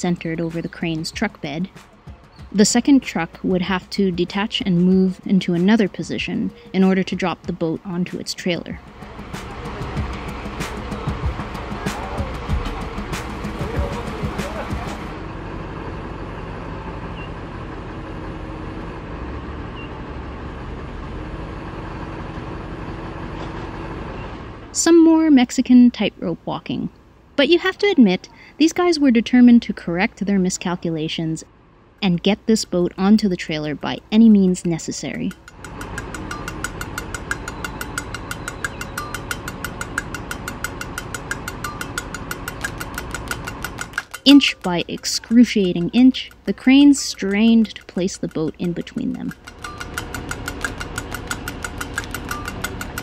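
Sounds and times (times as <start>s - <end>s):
rapid even ticking: 0.0s - 15.2s, 32.5s - 53.0s
truck engine rumbling: 0.0s - 53.0s.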